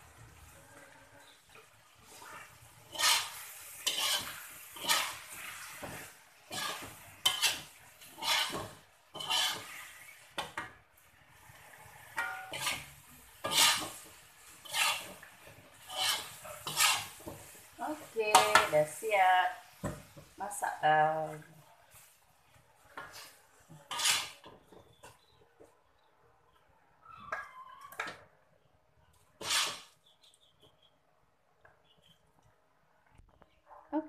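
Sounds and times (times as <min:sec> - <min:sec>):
metal spatula scraping a wok: 0:00.6 - 0:19.2, 0:22.8 - 0:25.3, 0:29.3 - 0:30.0.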